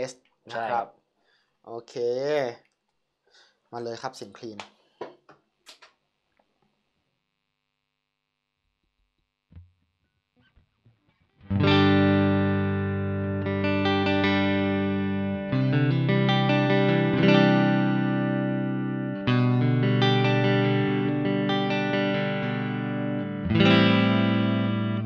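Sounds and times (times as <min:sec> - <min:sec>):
electric guitar strummed chords: 0:11.4 - 0:25.0.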